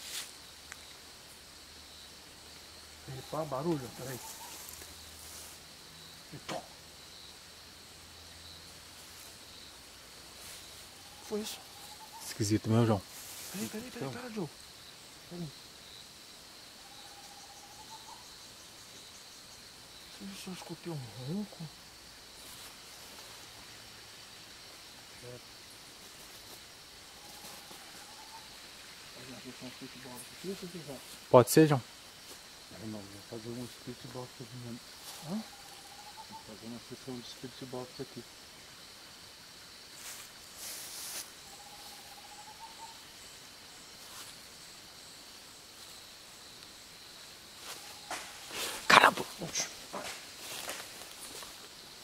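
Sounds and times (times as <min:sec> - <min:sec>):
crickets chirping: 0:00.0 - 0:52.0
faint hiss: 0:00.0 - 0:52.0
high insect drone: 0:00.0 - 0:52.0
short hiss: 0:40.0 - 0:41.3.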